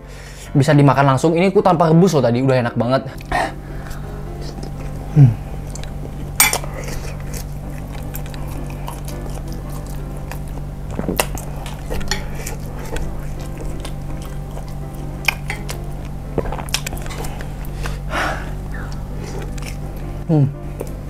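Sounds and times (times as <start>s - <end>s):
chewing: 5.6s - 20.1s.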